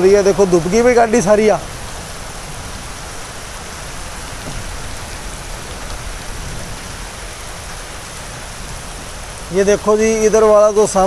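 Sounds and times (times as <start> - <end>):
heavy rain on flooded street: 0.0 - 11.0.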